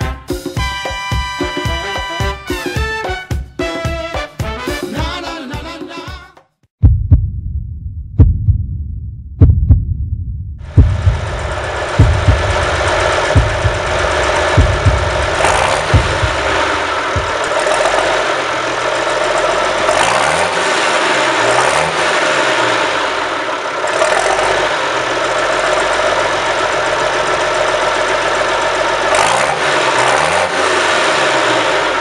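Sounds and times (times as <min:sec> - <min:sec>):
tractor engine revving: 0:10.6 - 0:32.0.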